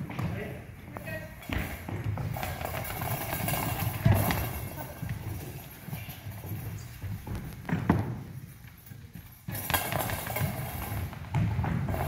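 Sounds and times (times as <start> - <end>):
bells rattling in rolling ball: 2.4 - 6.8
footsteps on wooden floor: 6.4 - 8.8.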